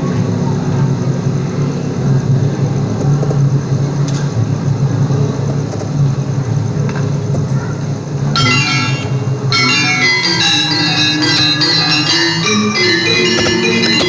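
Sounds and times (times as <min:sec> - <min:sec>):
gamelan ensemble playing: 0:08.4 - 0:14.0.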